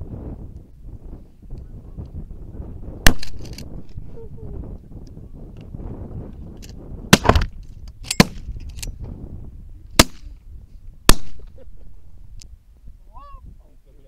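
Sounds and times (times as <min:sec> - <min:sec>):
gunshot echo: 0:03.0 - 0:03.5, 0:07.1 - 0:07.5, 0:10.0 - 0:10.3, 0:11.1 - 0:11.5
shotgun shots: 0:03.0 - 0:03.6, 0:07.1 - 0:07.5, 0:10.0 - 0:10.3, 0:11.1 - 0:11.5.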